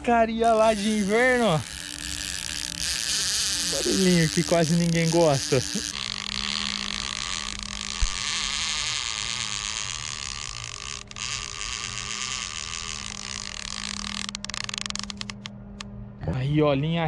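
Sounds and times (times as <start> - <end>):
fishing reel drag buzzing: 0.4 - 15.9.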